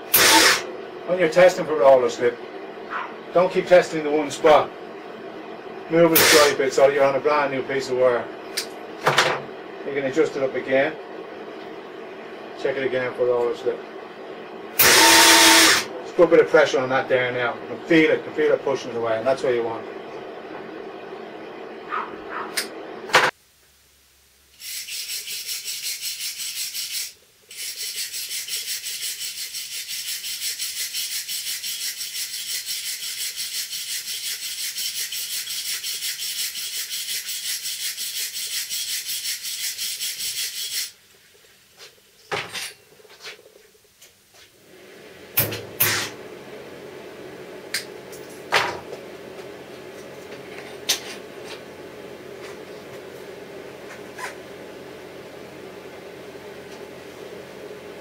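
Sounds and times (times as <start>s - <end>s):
welding arc hissing and crackling: 0.1s - 0.7s, 6.0s - 7.0s, 14.8s - 15.9s.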